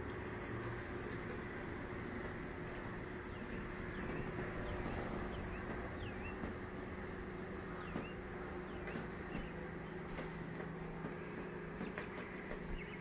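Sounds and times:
background hum: 0.0s - 13.0s.

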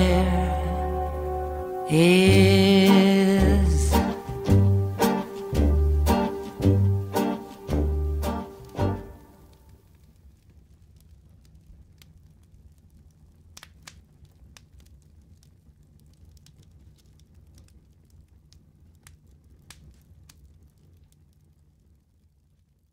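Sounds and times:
low steady hum: 0.0s - 11.8s
faint crackles and clicks: 6.2s - 22.9s.

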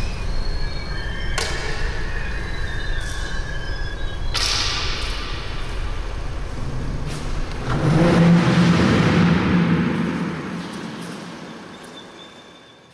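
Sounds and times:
burst of noise: 4.4s - 11.9s
low pulsing hum: 5.2s - 12.1s
rushing rumble: 5.3s - 12.2s.

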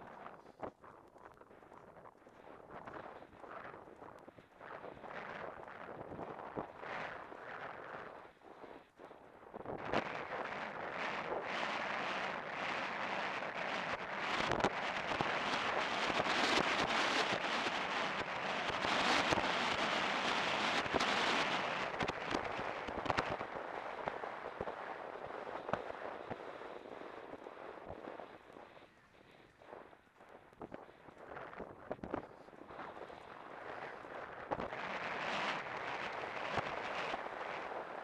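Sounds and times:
wind rushing over microphone: 9.5s - 38.0s.

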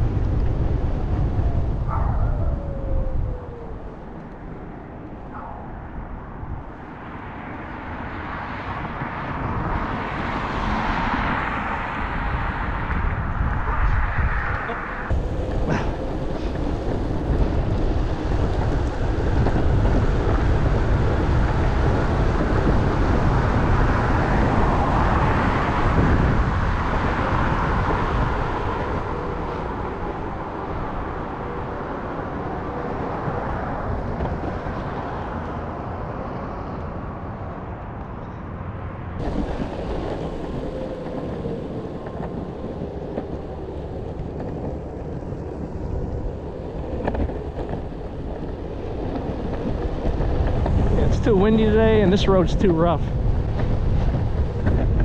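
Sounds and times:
skateboard wheels rumbling on asphalt: 0.0s - 55.0s
wind buffeting microphone: 0.0s - 55.0s.

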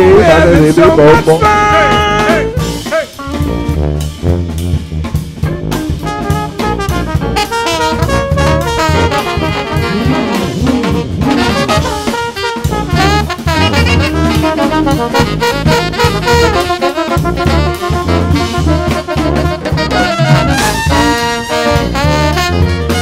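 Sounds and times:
brass band playing: 0.0s - 23.0s.

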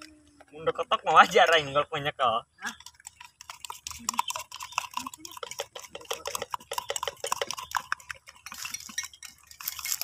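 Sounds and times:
plastic water bottles clicking: 2.6s - 10.0s
light clinks: 2.7s - 10.0s.

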